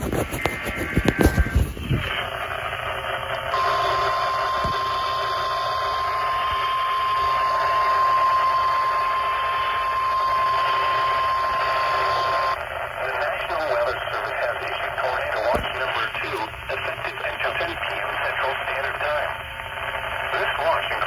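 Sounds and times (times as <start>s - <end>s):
steady alarm beep: 3.5s - 12.6s.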